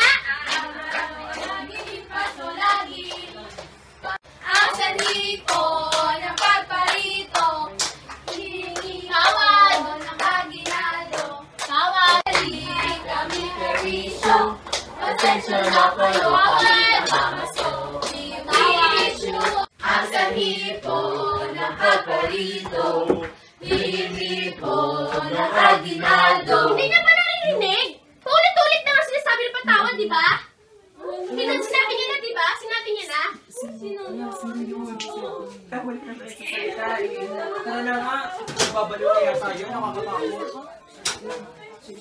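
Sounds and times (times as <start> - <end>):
rhythmic hand clapping: 0.0 - 26.7, 41.0 - 41.4
voices singing together: 0.0 - 27.7, 33.4 - 42.0.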